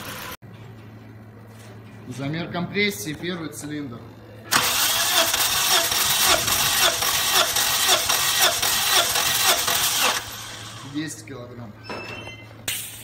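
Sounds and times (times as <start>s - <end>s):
engine cranking by starter motor: 4.5s - 11.0s.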